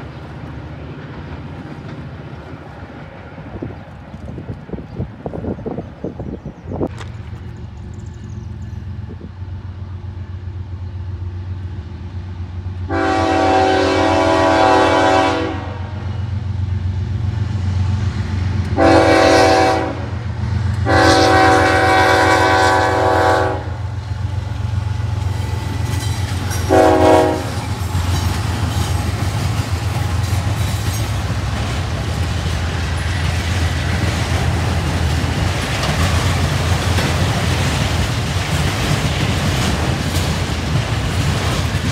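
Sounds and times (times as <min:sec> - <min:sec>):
locomotive engine rumble: 0:00.0 - 0:41.9
train air horn: 0:12.9 - 0:16.2, 0:18.8 - 0:24.0, 0:26.5 - 0:27.8
train wheels clattering on rails: 0:20.3 - 0:41.9.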